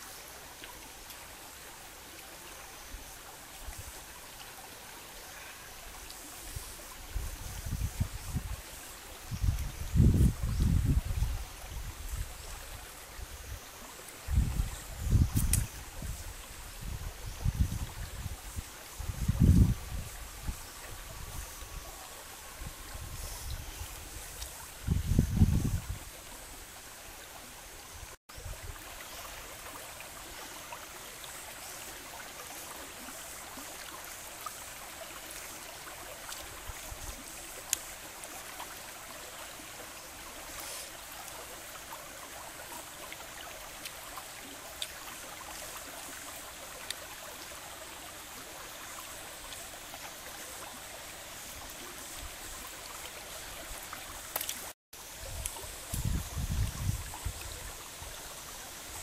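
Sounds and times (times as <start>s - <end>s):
stream running over rocks: 0.0s - 59.0s
faint clicks: 15.4s - 15.7s, 54.3s - 54.6s.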